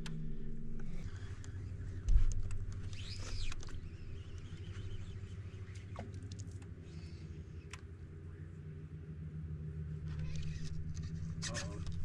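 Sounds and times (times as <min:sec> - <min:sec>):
faint clicks: 0:00.0 - 0:07.9
trolling motor humming: 0:00.0 - 0:12.0
short high squeaks: 0:02.8 - 0:04.0.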